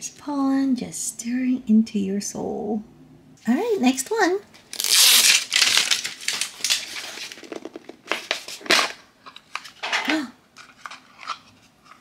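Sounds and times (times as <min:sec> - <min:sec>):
plastic rustling and crinkling: 0:04.5 - 0:12.0.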